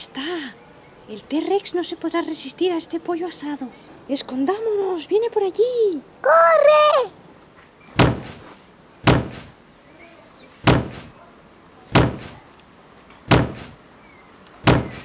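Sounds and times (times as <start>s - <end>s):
booming giant footsteps: 8.0s - 9.6s, 10.6s - 11.2s, 12.0s - 12.4s, 13.3s - 13.8s, 14.6s - 15.0s.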